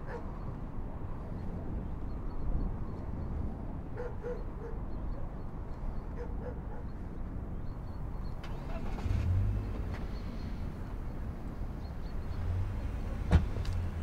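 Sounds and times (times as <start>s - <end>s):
car engine running low: 8.2s - 14.0s.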